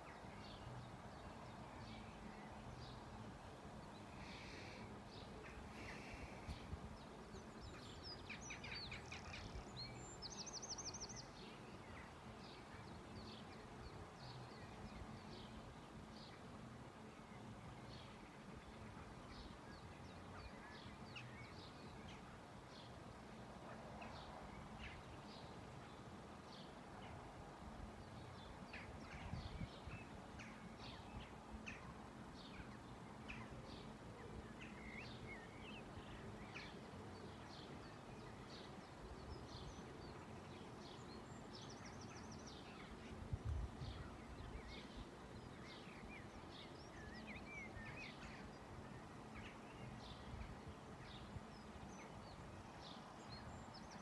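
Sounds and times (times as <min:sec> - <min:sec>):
small birds chirping: 0:00.0 - 0:16.6
outdoor background: 0:00.0 - 0:54.0.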